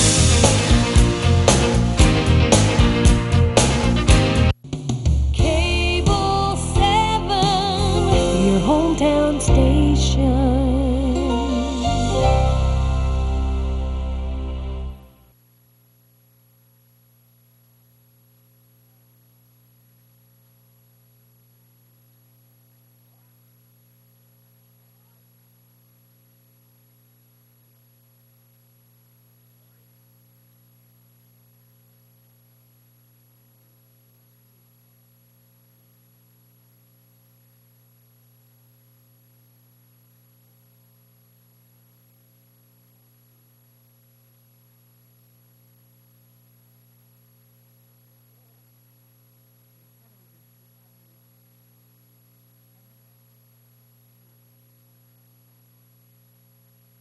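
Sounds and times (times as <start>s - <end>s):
thin high whine: 0.0s - 3.9s
low electrical hum: 5.4s - 57.0s.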